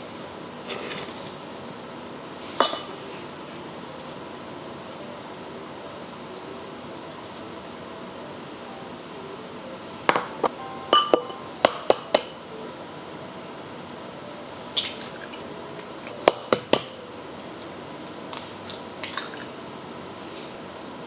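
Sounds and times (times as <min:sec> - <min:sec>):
eggs cracked on glass bowl: 0:18.4 - 0:19.5.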